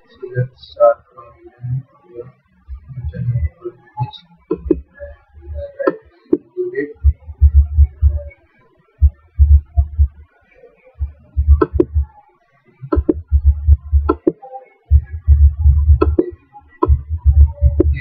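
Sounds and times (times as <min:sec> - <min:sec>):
keyboard typing: 0:11.0 - 0:12.1, 0:12.8 - 0:14.3, 0:14.9 - 0:18.0.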